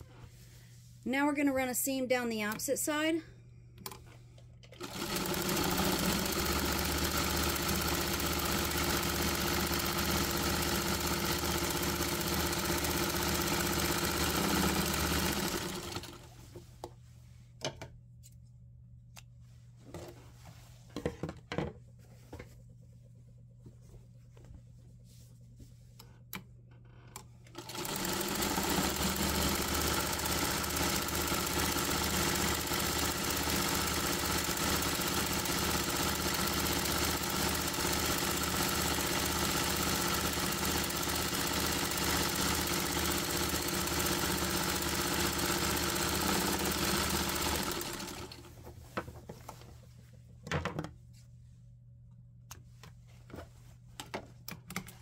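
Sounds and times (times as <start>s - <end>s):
sewing machine stitching: 4.7s - 16.3s, 27.5s - 48.6s.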